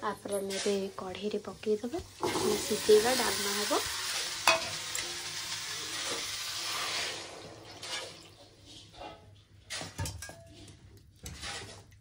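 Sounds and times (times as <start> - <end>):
water hissing in hot pan: 0.6 - 8.2.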